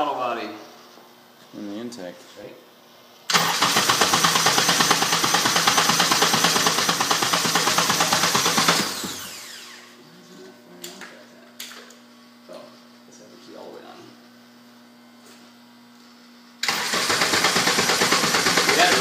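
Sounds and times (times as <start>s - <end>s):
engine cranking with starter whine: 3.3s - 9.9s, 16.6s - 19.0s.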